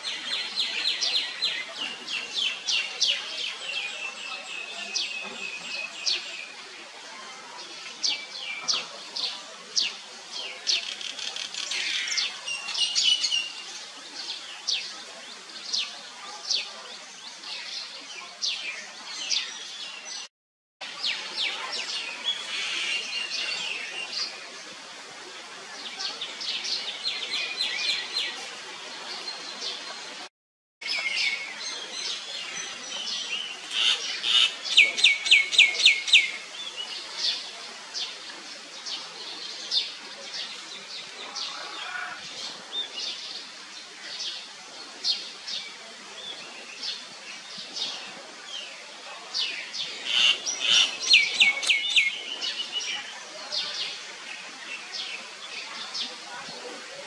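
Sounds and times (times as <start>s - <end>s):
small birds chirping: 49.4s - 56.2s.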